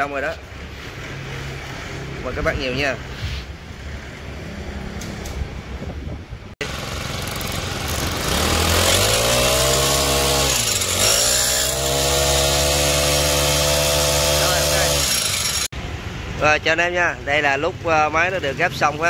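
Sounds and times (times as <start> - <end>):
small boat motor engine running: 6.6 - 9.8.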